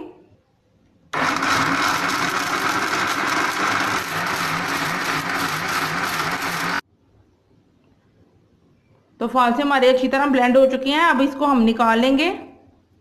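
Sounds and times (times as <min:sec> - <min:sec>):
electric blender running: 0:01.2 - 0:06.8.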